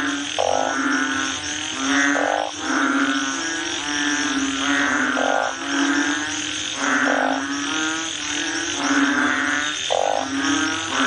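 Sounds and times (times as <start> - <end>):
frogs croaking: 0.0 - 11.0.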